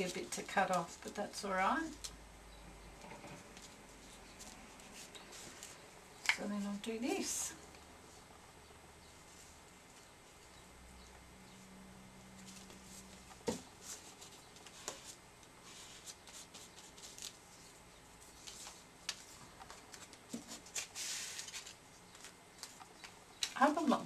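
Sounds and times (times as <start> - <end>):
paper rustling and crinkling: 12.4 - 23.8.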